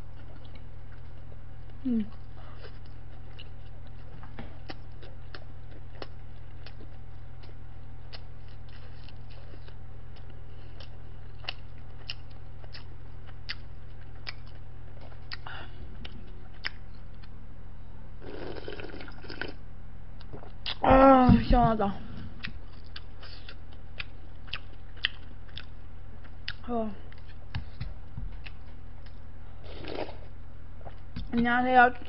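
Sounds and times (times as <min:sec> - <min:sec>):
close chewing: 0:00.0 - 0:17.4, 0:22.4 - 0:31.0
low electrical hum: 0:00.0 - 0:32.0
slurping from a bowl: 0:18.2 - 0:19.6, 0:29.6 - 0:30.3.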